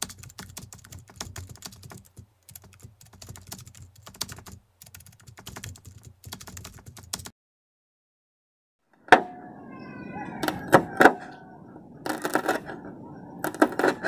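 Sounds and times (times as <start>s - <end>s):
computer keyboard typing: 0.0s - 7.3s, 12.0s - 12.7s, 13.4s - 14.0s.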